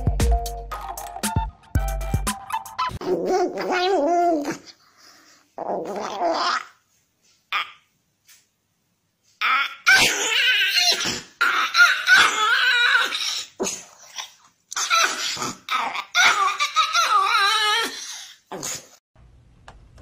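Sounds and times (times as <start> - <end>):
small dog growling: 5.6 - 6.7.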